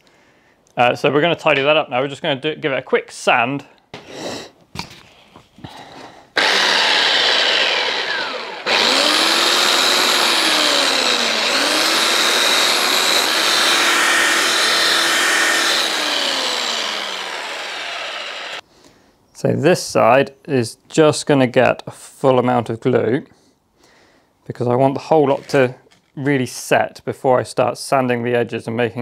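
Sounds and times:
electric sander sanding wood: 6.4 - 18.6.

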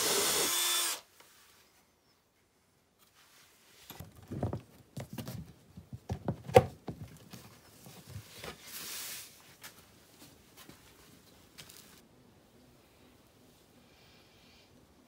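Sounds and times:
plastic pipes knocking and tapping: 3.9 - 7.2.

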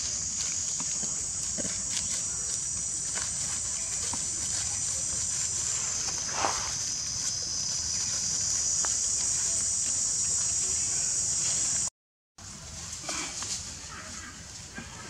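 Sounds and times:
insects droning: 0.0 - 11.9
dry leaves rustling: 0.0 - 15.0.

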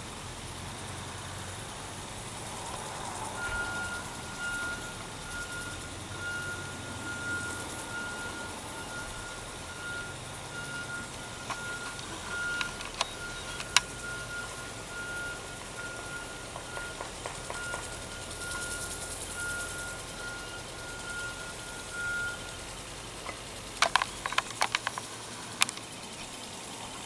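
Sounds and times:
backup alarm beeping: 2.3 - 23.0
sharp clicks or knocks: 23.2 - 25.9.

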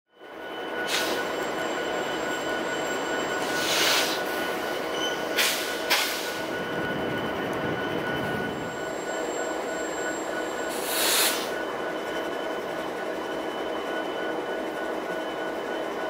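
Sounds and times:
air hiss: 10.7 - 11.5
short sharp hisses: 10.8 - 11.5.

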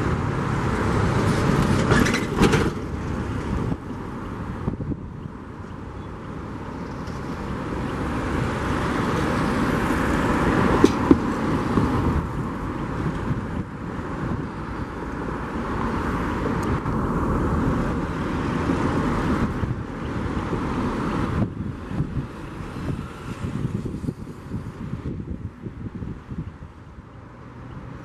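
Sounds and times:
engine and traffic roar: 0.0 - 28.0
wind on microphone: 0.0 - 28.0.

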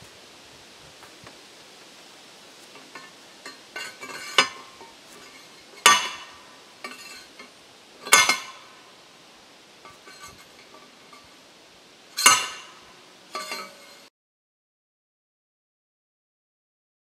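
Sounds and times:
light metal clinks: 2.6 - 9.1, 9.8 - 11.4, 12.1 - 14.1
post pounder clanging on steel pipe: 2.7 - 9.0, 9.8 - 11.4, 12.1 - 14.1.

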